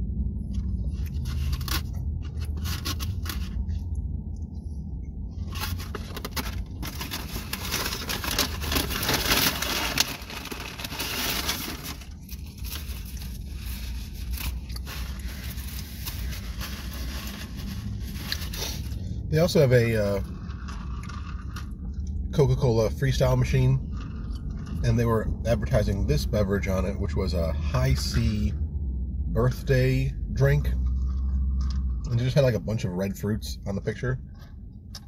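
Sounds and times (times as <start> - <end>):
paper wrapping rustling: 5.4 - 19.0
sharp paper crack: 5.5 - 18.8.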